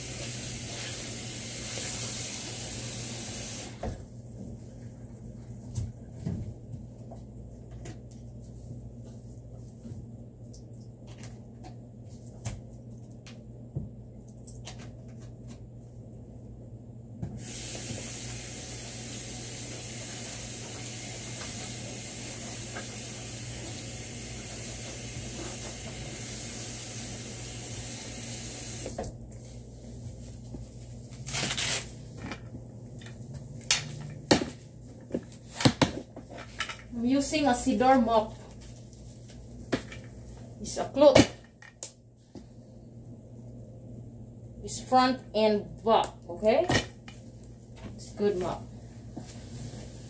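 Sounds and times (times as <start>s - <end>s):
water running from a tap: 0.0s - 3.8s, 17.4s - 29.1s.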